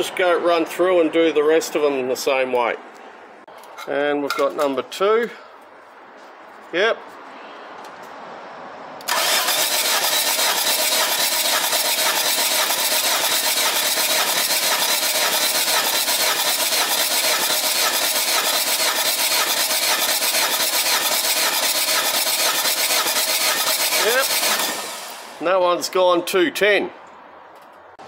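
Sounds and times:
engine cranking on starter motor: 9.0s - 25.4s.

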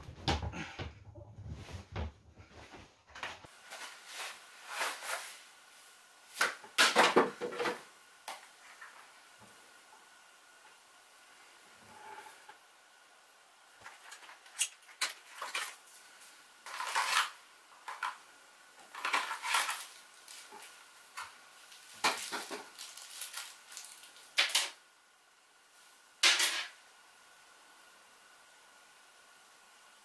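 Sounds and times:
packaging rustling and scraping: 3.4s - 5.5s, 13.8s - 18.2s, 18.8s - 24.6s.

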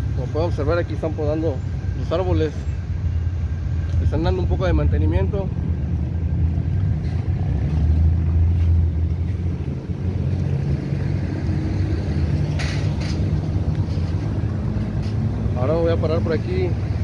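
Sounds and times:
street traffic rumble: 0.0s - 17.0s.

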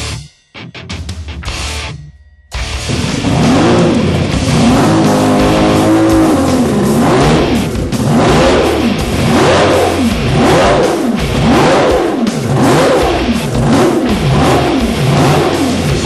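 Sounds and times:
outboard engine revving: 2.9s - 16.0s.

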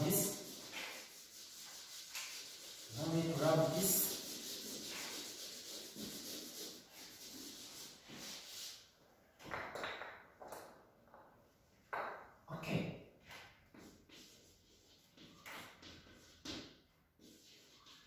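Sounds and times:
duster rubbing on chalkboard: 0.0s - 8.8s, 13.7s - 18.0s.

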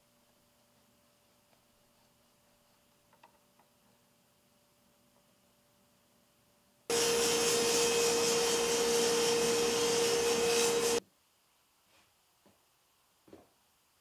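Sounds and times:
woodworking machine rushing noise: 6.9s - 11.0s.

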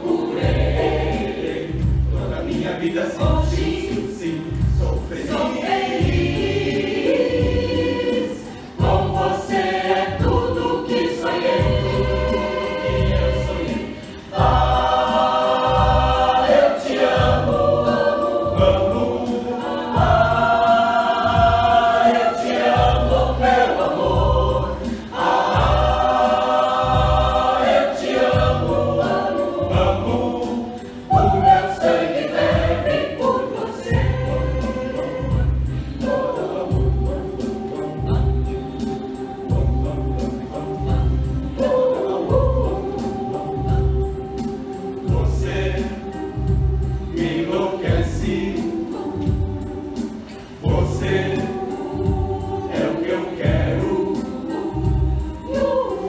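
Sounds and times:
mixed choir singing upbeat song: 0.0s - 56.0s
steady low beat: 5.8s - 41.6s.

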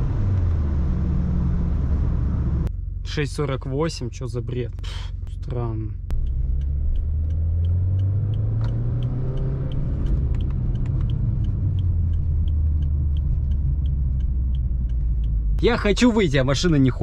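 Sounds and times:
road and tyre noise: 0.0s - 3.2s, 4.8s - 17.0s
car engine running: 0.0s - 17.0s
light regular ticking: 4.7s - 17.0s.

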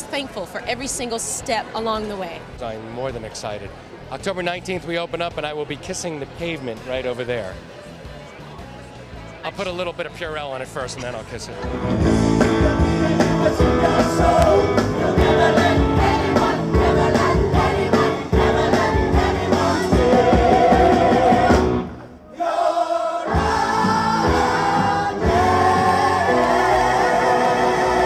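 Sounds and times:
band with steady beat: 11.6s - 21.9s
backing singers: 12.0s - 28.0s
man and woman singing: 12.4s - 21.7s, 22.4s - 28.0s.

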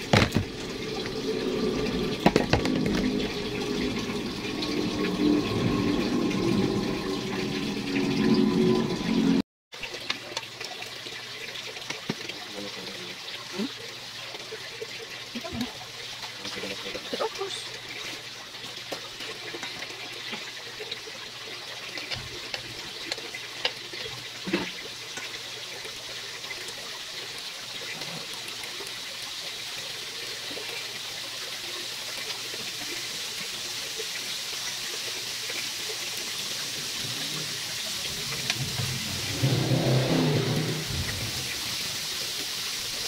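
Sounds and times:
chicken sizzling on a grill: 16.3s - 43.0s.

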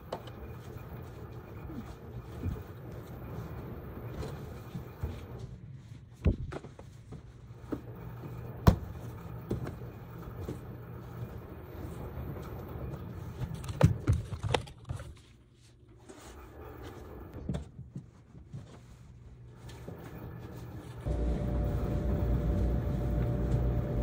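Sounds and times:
low machine hum: 19.9s - 24.0s.

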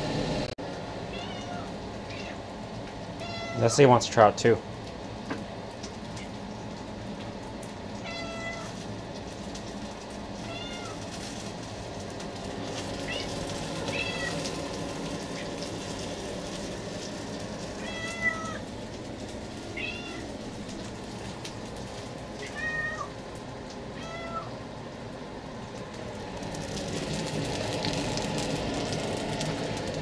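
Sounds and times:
cat meowing: 1.1s - 2.4s, 3.2s - 3.7s, 8.0s - 8.8s, 10.4s - 11.0s, 13.0s - 14.5s, 17.8s - 18.7s, 19.8s - 20.3s, 22.4s - 23.2s, 24.0s - 24.6s
frying pan hiss: 1.4s - 30.0s.

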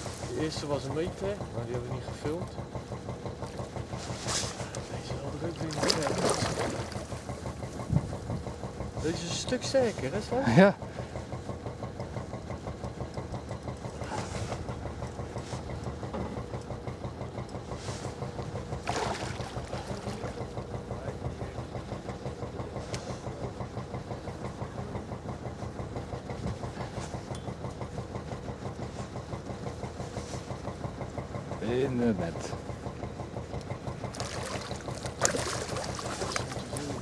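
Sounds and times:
engine idling: 0.0s - 37.0s.

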